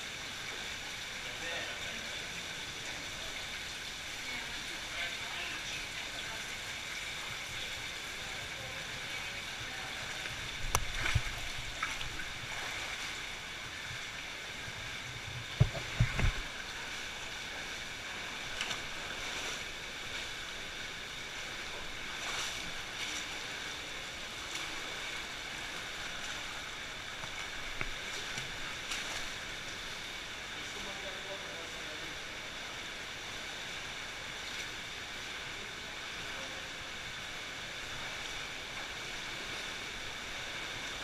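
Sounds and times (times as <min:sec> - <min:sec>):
water sloshing and splashing: 0:00.0 - 0:30.3
rushing water: 0:00.0 - 0:41.0
loud splashes and thumps: 0:15.5 - 0:16.6.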